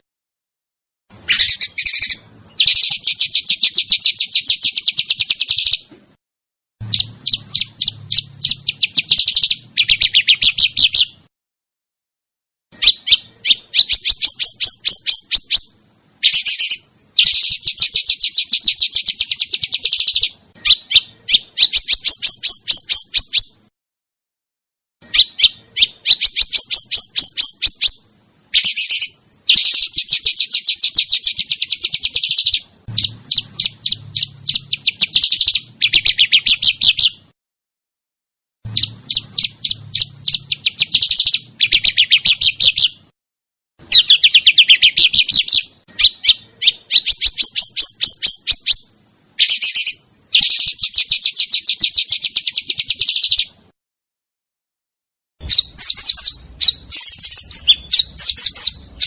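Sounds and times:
songbird trilling: 0:01.2 - 0:05.9, 0:06.8 - 0:11.2, 0:12.8 - 0:23.6, 0:25.0 - 0:37.3, 0:38.7 - 0:43.1, 0:43.9 - 0:53.6, 0:55.4 - 0:59.0.

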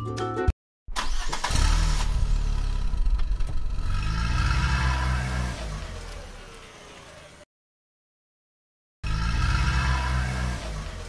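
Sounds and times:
vehicle engine revving: 0:01.0 - 0:07.5, 0:09.0 - 0:11.0.

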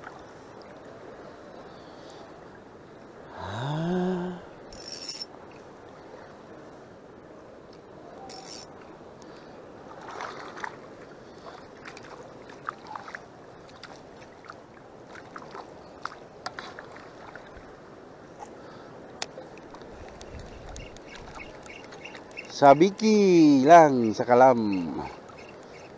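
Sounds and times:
small splashes and ticks: 0:07.7 - 0:17.7, 0:19.2 - 0:22.6
sea water lapping: 0:08.1 - 0:25.9.

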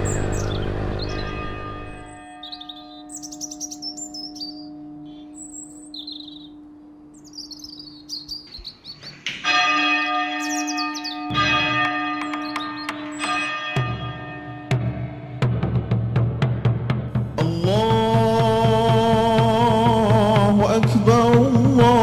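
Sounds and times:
church bell ringing: 0:00.0 - 0:08.1, 0:09.3 - 0:15.6
birds chirping: 0:00.0 - 0:14.7.

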